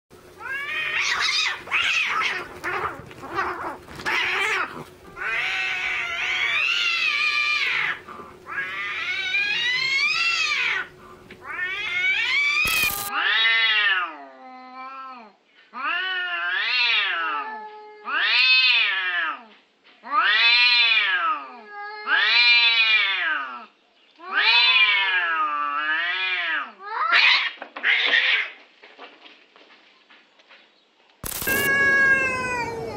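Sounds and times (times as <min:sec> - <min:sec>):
cats screeching and yowling: 0:00.4 - 0:28.6, 0:31.3 - 0:32.9
long cat yowls: 0:20.1 - 0:23.7, 0:31.6 - 0:32.9.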